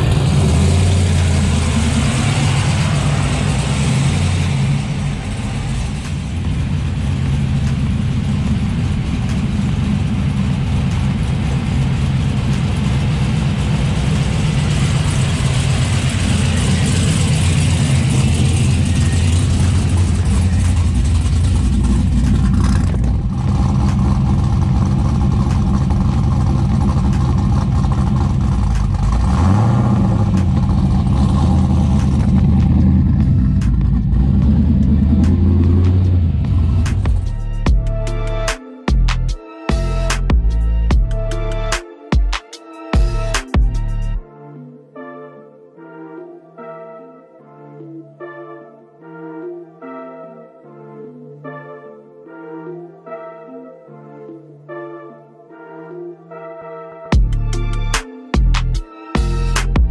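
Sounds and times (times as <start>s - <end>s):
car engine idling: 0.0s - 41.8s.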